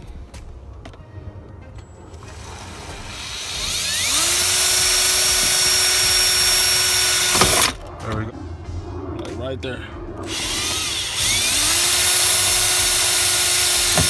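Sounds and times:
cordless drill whining: 1.8 - 7.8, 10.2 - 14.0.

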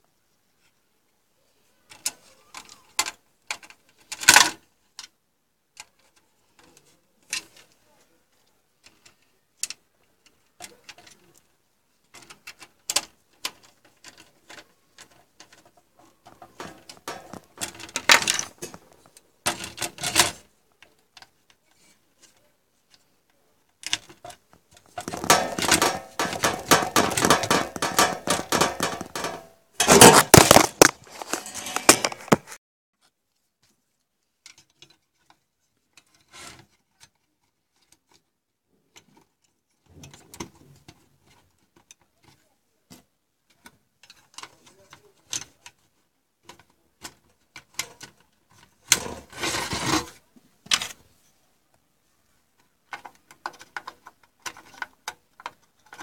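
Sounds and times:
plastic clicks and rattling: 8.8 - 23.1, 23.7 - 32.6, 52.6 - 56.0
scraping bursts: 25.0 - 32.6.

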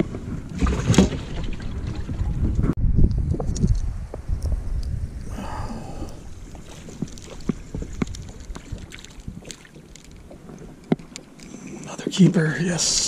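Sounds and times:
water slapping boat hull: 0.0 - 2.8, 6.4 - 12.0
wind on microphone: 0.0 - 10.8.

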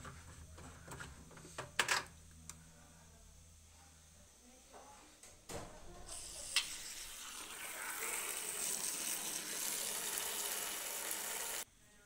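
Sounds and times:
water running: 6.1 - 11.6.

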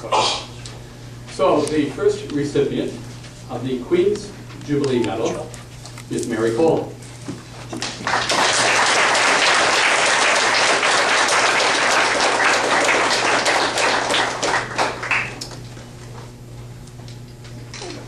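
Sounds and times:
low electrical hum: 0.0 - 18.0
audience applauding: 7.8 - 15.5.

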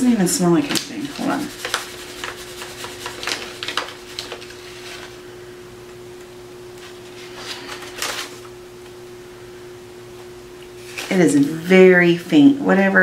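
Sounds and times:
faint steady hum: 0.0 - 13.0
paper crinkling and rustling: 0.6 - 5.2, 6.8 - 8.5, 10.8 - 11.7.

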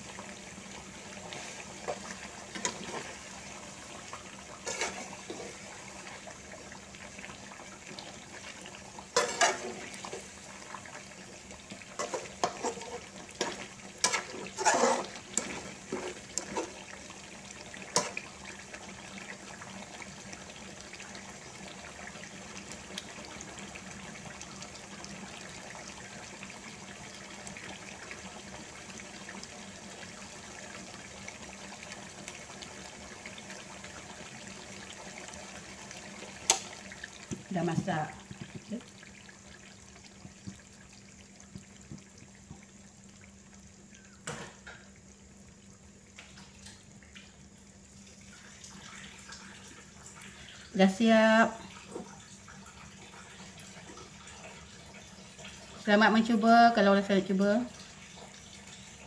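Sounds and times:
sauce simmering and bubbling: 0.0 - 59.0
metal spatula scraping a pan: 2.6 - 3.2, 4.6 - 5.7, 9.2 - 10.2, 12.0 - 16.8, 18.0 - 18.2.

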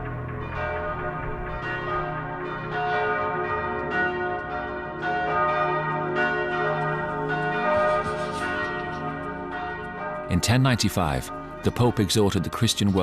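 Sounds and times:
church bells ringing: 0.0 - 13.0.

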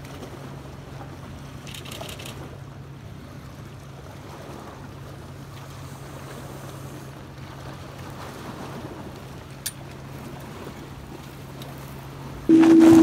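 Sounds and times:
low hum: 12.5 - 13.0.

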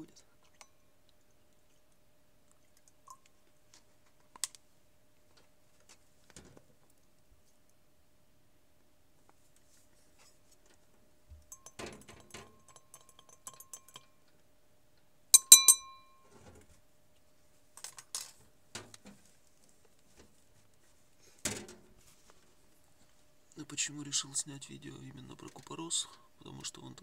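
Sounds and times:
glass clinking and rattling: 11.5 - 14.2, 15.4 - 16.3.

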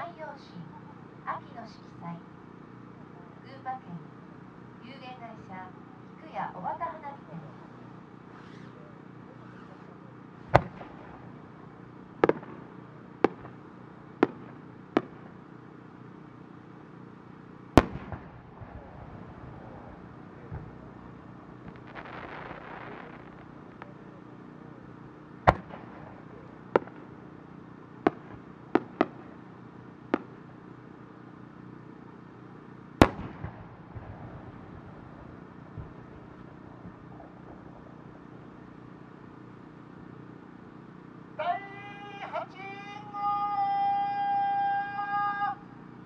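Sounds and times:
soft rushing hiss: 0.0 - 46.0
firework shells booming: 9.4 - 15.4, 17.8 - 24.3, 25.4 - 27.4, 28.0 - 29.5, 30.1 - 30.5, 33.0 - 38.9.

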